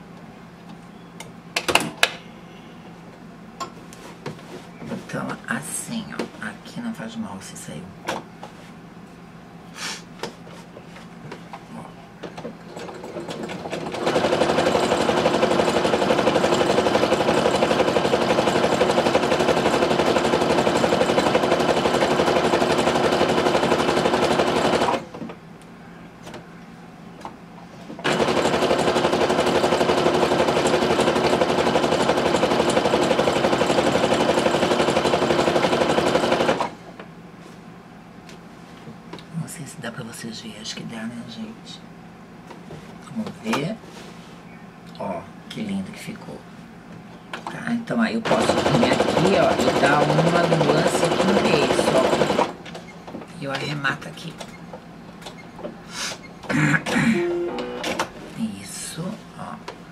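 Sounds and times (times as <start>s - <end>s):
sewing machine stitching: 12.7s - 25.1s, 28.0s - 36.8s, 48.2s - 52.8s.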